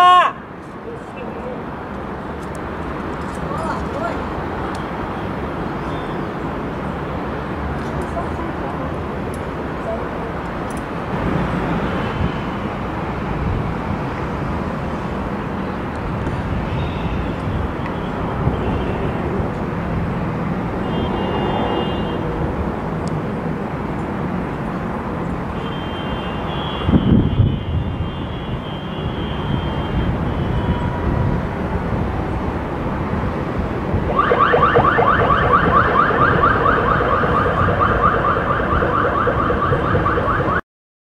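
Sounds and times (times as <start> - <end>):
low traffic rumble: 0.0 - 40.6.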